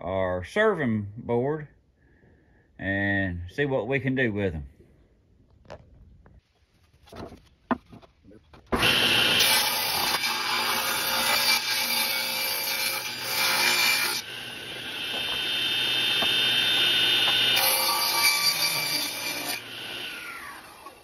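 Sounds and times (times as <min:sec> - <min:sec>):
table saw cutting wood: 0:08.7 - 0:21.0
saw blade whining: 0:08.8 - 0:21.0.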